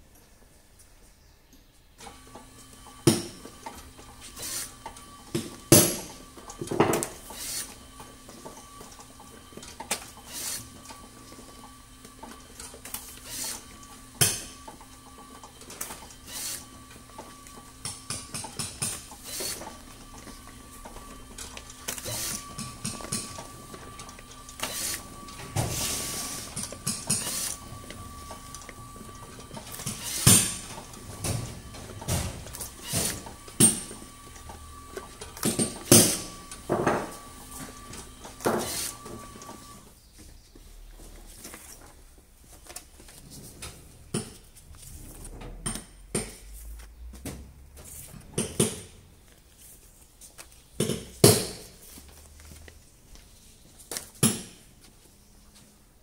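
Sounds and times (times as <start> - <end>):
motor hum: 2.0 - 40.0.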